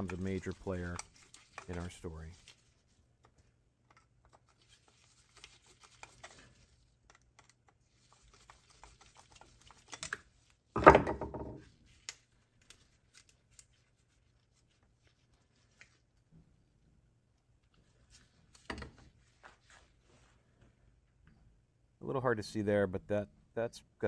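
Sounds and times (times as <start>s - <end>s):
screwdriver clicking and scratching: 7.0s - 10.3s.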